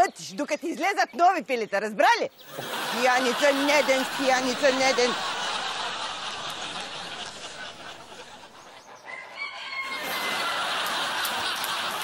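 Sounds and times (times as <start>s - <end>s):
laughter: 2.5s - 8.8s, 9.9s - 12.0s
rooster crowing: 9.1s - 10.8s.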